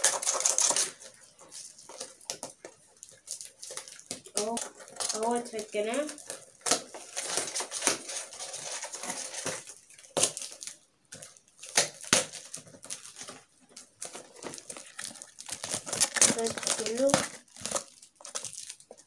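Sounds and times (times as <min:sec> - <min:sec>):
cardboard scraping and rustling: 0:03.8 - 0:10.4, 0:12.3 - 0:18.6
packing tape pulled off: 0:14.4 - 0:18.9.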